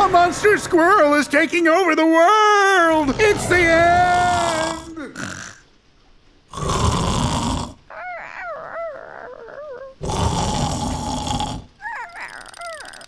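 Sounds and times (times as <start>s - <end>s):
cartoon snoring: 3.0s - 5.6s, 6.5s - 13.0s.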